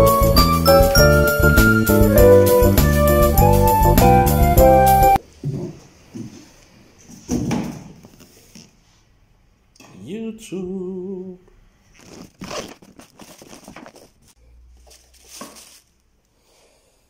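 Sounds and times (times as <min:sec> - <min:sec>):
paper rustling: 0:11.9 - 0:16.0
box lid scraping: 0:12.0 - 0:14.3.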